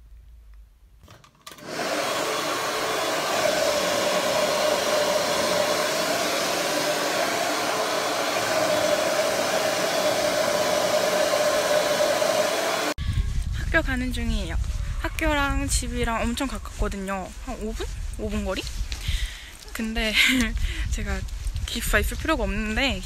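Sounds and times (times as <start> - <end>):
hair dryer blowing: 1.5 - 13.0.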